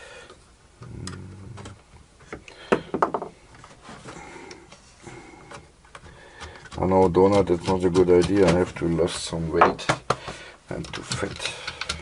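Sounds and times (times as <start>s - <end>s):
tools clicking and tapping on metal: 5.9s - 9.2s, 9.8s - 12.0s.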